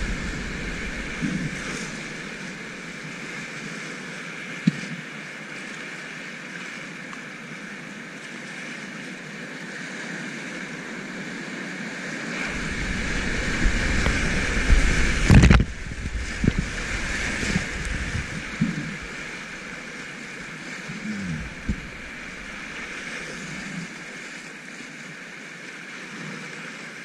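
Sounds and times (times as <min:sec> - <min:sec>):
whitewater rapids rushing: 0:00.0 - 0:04.4, 0:11.4 - 0:27.0
waves slapping against kayak: 0:00.0 - 0:05.8, 0:12.0 - 0:27.0.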